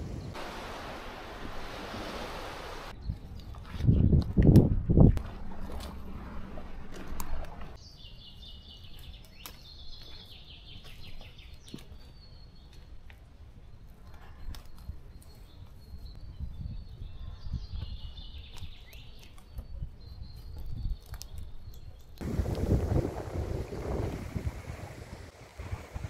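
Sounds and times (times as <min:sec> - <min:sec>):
small songbird singing: 0:07.8 - 0:12.9, 0:13.7 - 0:22.2
low uneven rumble: 0:22.2 - 0:26.0.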